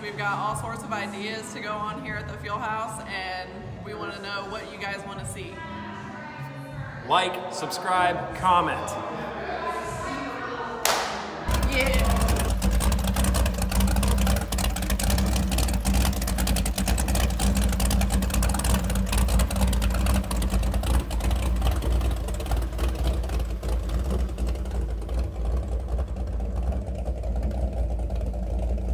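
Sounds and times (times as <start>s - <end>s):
boat engine idling: 11.5s - 28.9s.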